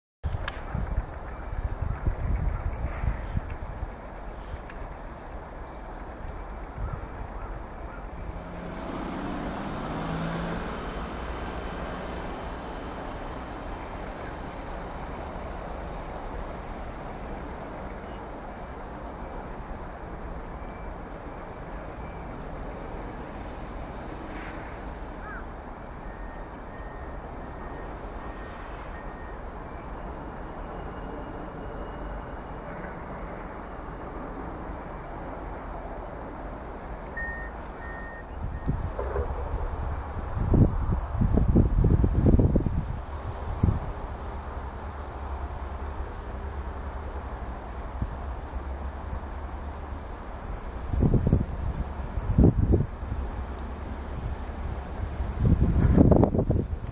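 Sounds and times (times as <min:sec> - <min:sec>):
distant road traffic rumble: 0:00.3 - 0:56.9
faint high ticks: 0:04.6 - 0:04.9.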